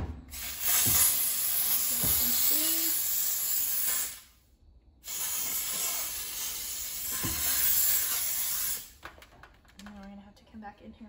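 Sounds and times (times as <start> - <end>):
steam cleaner hissing: 0.2 - 4.4, 5.0 - 9.0.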